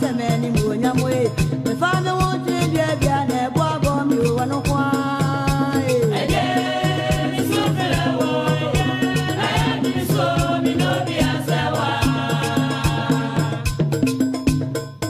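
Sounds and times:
background music with quick beat: 0.0 - 15.0.

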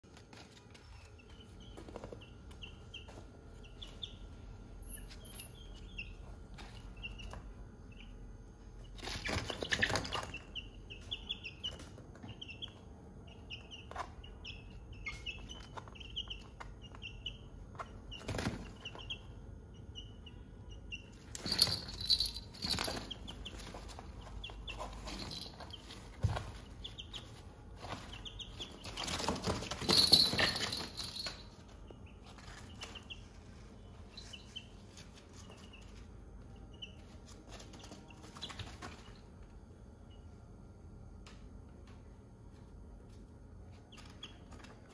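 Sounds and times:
wings flapping and scuffling: 0.0 - 4.1, 8.8 - 12.4, 17.7 - 19.1, 21.1 - 36.2, 37.0 - 39.5
chicks peeping and clucking: 0.1 - 39.3.

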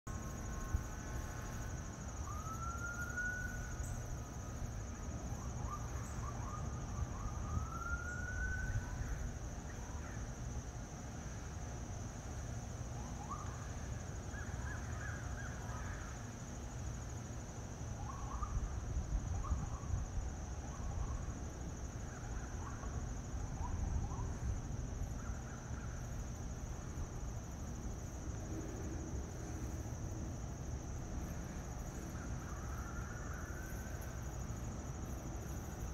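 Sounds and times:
distant siren wails: 0.1 - 10.1, 30.6 - 35.9.

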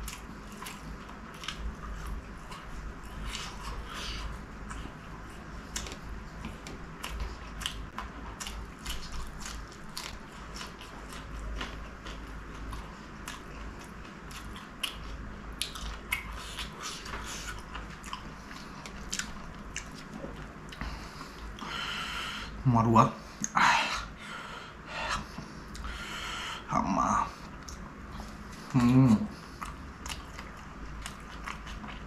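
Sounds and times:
crisp chewing crunches: 0.0 - 21.5.

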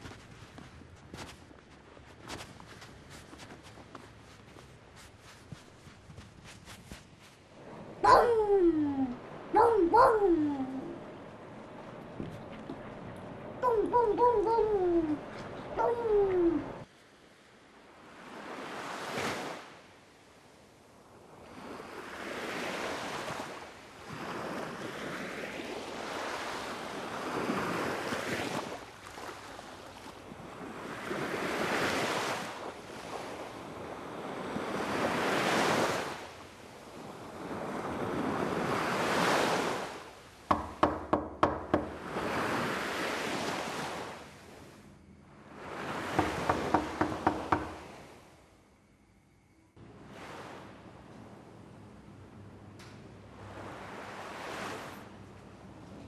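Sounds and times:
sea waves washing onto a beach: 17.9 - 40.8, 41.7 - 44.8, 45.5 - 48.2, 53.4 - 55.2.

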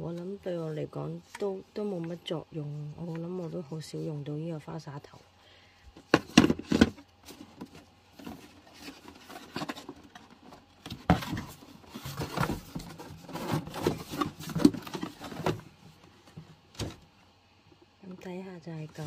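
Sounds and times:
cardboard rustling and scraping: 6.0 - 17.1.

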